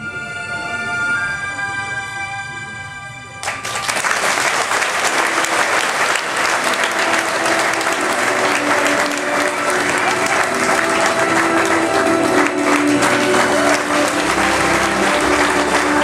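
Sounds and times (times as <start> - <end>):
music with long held notes: 0.0 - 16.0
audience applause: 3.4 - 16.0.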